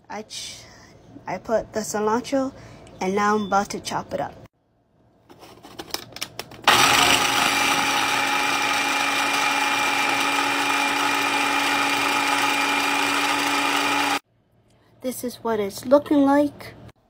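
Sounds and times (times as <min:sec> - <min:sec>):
electric food chopper motor: 0:06.6 - 0:14.2.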